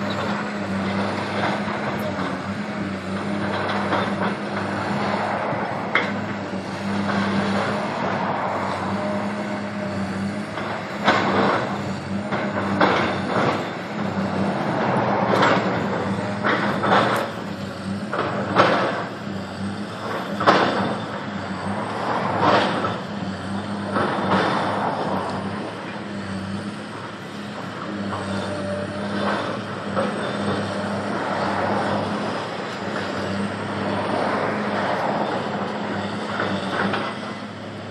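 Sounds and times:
diesel engine droning: 0.0 - 37.9
dump truck passing: 0.0 - 37.9
traffic passing close by: 0.0 - 37.9
excavator banging and crashing rubble: 10.4 - 19.2, 19.9 - 21.3, 21.9 - 24.8.

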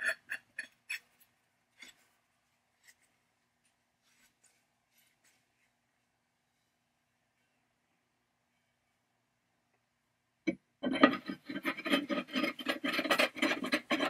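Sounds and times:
metal threads scraping: 0.0 - 2.2, 10.8 - 14.0.

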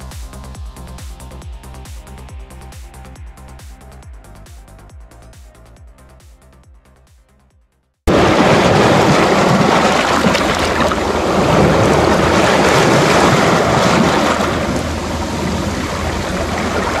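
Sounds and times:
waves breaking on stony shore: 8.1 - 17.0.

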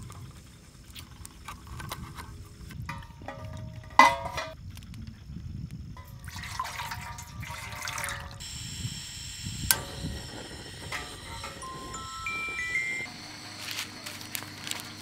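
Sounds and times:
metal tin clanking and scraping: 2.9 - 4.6
gas hissing: 8.4 - 15.0.

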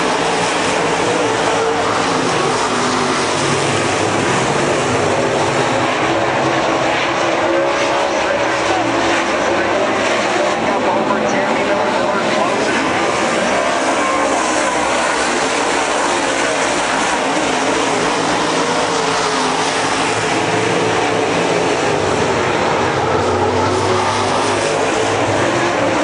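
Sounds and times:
race car engines at speed: 0.0 - 26.0.

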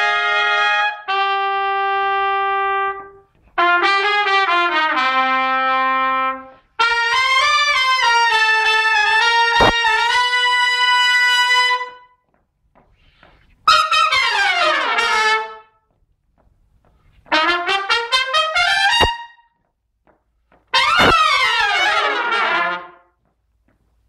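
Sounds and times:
trumpet section playing: 0.0 - 12.2, 13.7 - 15.8, 17.3 - 19.6, 20.7 - 23.2.

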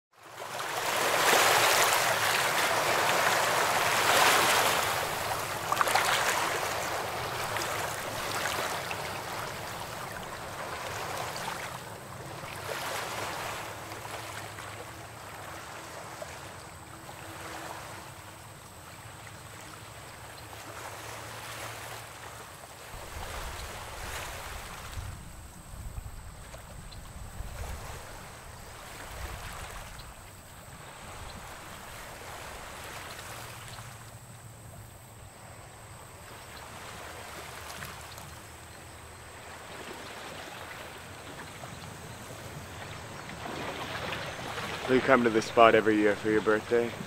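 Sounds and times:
waves washing against rocks: 0.4 - 14.5, 43.3 - 47.0.

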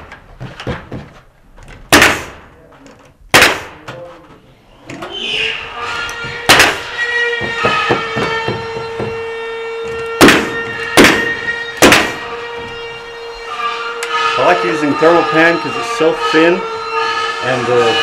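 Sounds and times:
pneumatic stapler firing: 1.9 - 2.4, 3.3 - 3.8, 6.5 - 7.0, 9.9 - 12.3
steady hum: 3.3 - 18.0.

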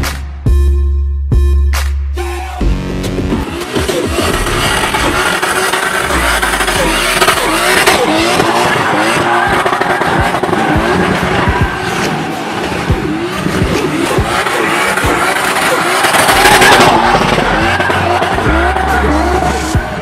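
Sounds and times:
car engine revving hard: 3.4 - 20.0
tyres squealing on tarmac: 14.3 - 20.0.

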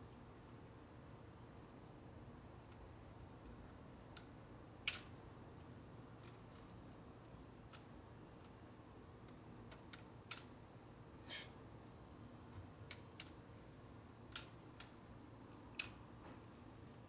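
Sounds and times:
small tool clicking on metal: 9.7 - 10.5
short metal scrape: 11.2 - 11.6.

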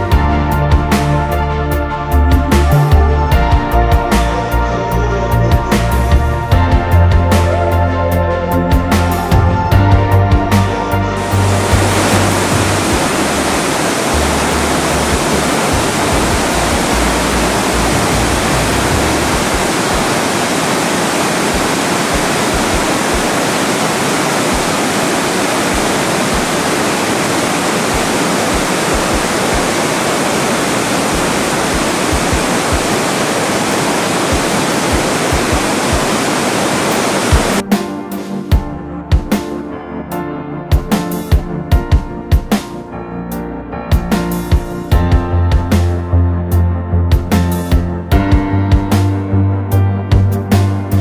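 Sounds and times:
music: 0.0 - 20.1, 37.2 - 51.0
rushing water in a gorge: 11.2 - 37.6.

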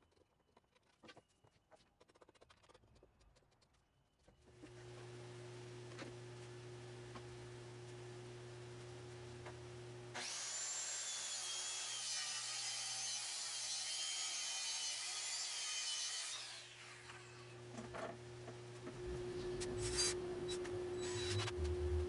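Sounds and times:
circular saw cutting plywood: 10.1 - 17.6, 19.4 - 22.0
steady low hum: 17.6 - 22.0.

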